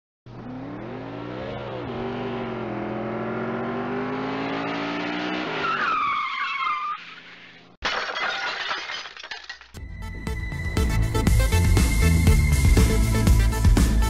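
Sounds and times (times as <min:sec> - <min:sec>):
car engine revving: 0:00.3 - 0:05.7
tyres screeching: 0:05.5 - 0:07.7.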